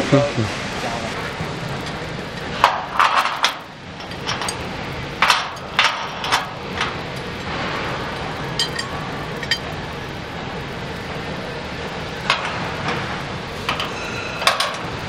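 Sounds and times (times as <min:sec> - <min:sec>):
steady background noise: 0:00.0 - 0:15.0
metal barriers clanking: 0:12.2 - 0:15.0.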